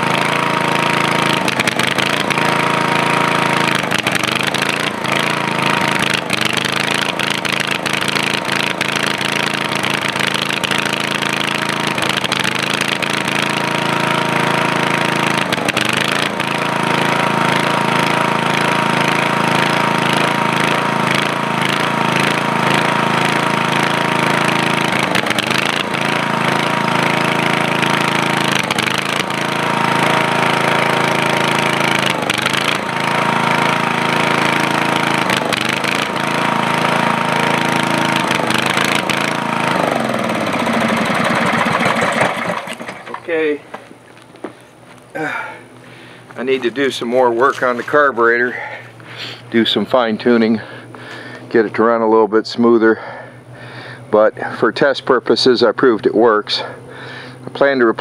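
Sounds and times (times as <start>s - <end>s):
generator engine running unevenly: 0.0s - 58.0s
hair dryer motor whine: 13.6s - 43.5s.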